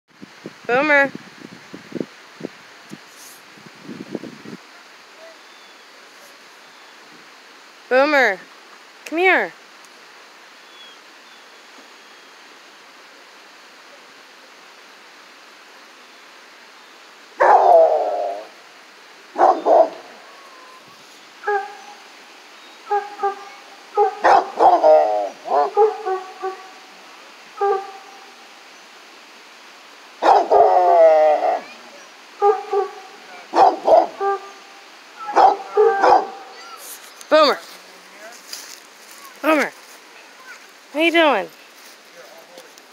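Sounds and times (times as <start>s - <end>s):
dog barking: 17.4s - 18.4s, 19.4s - 20.2s, 21.4s - 22.0s, 22.9s - 26.7s, 27.6s - 28.0s, 30.2s - 30.8s, 32.4s - 34.5s, 35.2s - 36.6s
dog baying: 17.4s - 18.5s, 19.4s - 22.0s, 22.9s - 26.7s, 30.2s - 31.7s, 32.4s - 34.6s, 35.2s - 36.6s.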